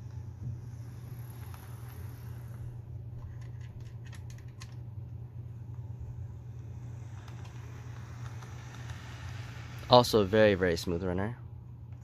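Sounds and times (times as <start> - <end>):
model train motor hum: 0.0 - 2.9, 6.0 - 11.2.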